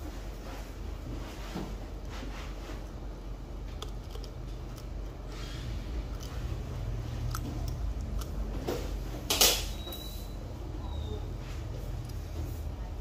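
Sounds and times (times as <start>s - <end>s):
steady low hum: 0.0s - 13.0s
metal dental instrument clicking: 6.0s - 6.6s, 7.2s - 8.5s.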